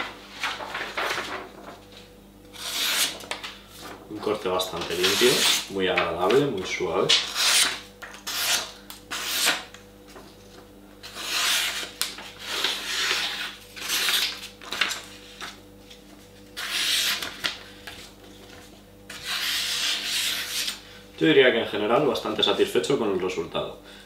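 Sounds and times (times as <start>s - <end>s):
knife slicing paper: 4.9s - 5.7s, 11.0s - 15.0s, 16.6s - 17.6s, 19.1s - 20.8s.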